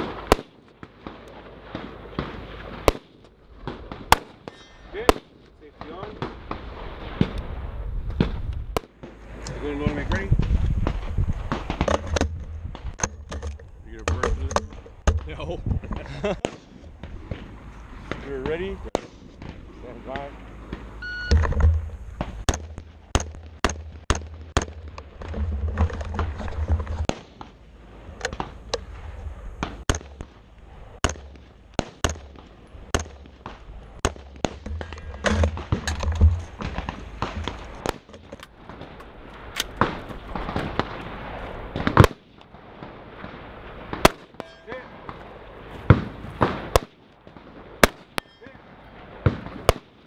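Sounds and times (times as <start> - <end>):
rifle shots: 0.0 - 7.6, 27.0 - 50.0
low rumble: 6.4 - 42.0.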